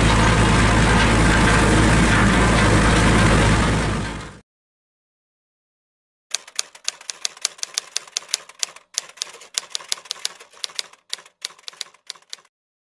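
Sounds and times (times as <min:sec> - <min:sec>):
typewriter key clacks: 0:06.3 - 0:12.5.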